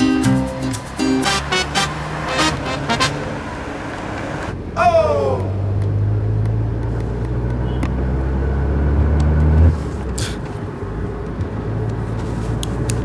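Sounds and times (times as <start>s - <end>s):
car cabin drone: 0.7s - 4.8s.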